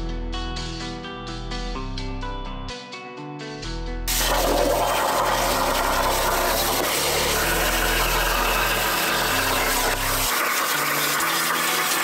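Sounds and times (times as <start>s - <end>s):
low bass background music: 0.0s - 12.0s
plasma torch hissing: 4.1s - 12.0s.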